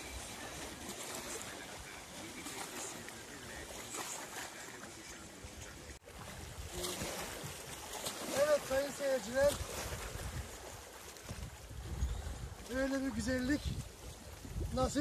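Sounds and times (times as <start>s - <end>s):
small waves lapping on rocks: 0.0s - 15.0s
wind buffeting microphone: 5.6s - 15.0s.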